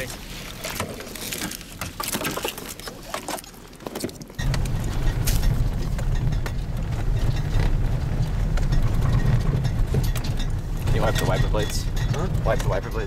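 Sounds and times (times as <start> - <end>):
off-road vehicle rumble from cab: 4.4 - 13.0.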